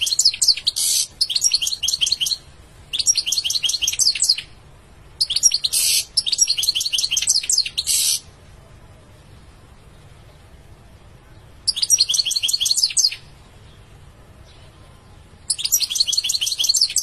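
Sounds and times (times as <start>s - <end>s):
goldfinch singing: 0.0s - 4.5s, 5.2s - 8.3s, 11.6s - 13.8s, 14.4s - 17.0s.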